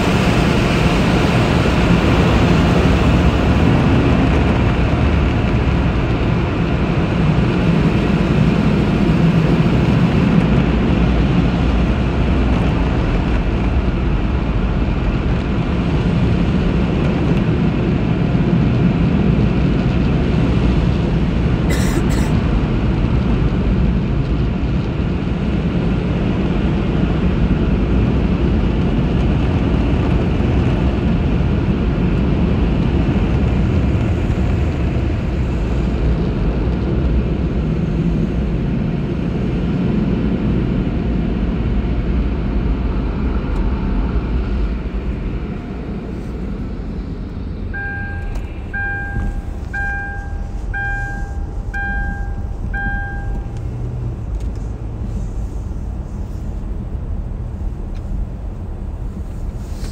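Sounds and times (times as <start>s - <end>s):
car wash air blowers: 0.0s - 23.2s, 42.6s - 59.9s.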